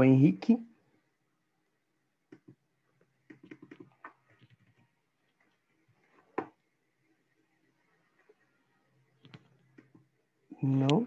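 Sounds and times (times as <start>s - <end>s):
computer mouse clicks: 2.3s - 2.6s, 3.2s - 4.8s.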